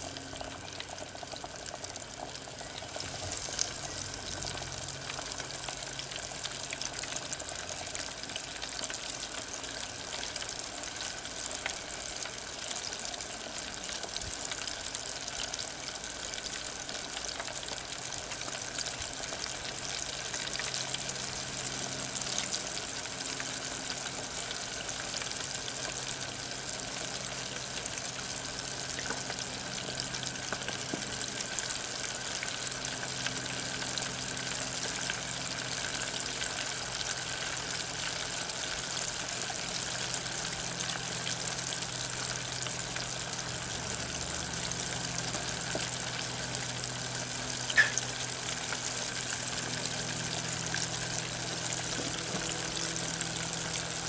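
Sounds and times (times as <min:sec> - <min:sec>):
low hum: 0:00.0 - 0:08.0, 0:19.6 - 0:54.0
oil sizzling and crackling: 0:00.0 - 0:54.0.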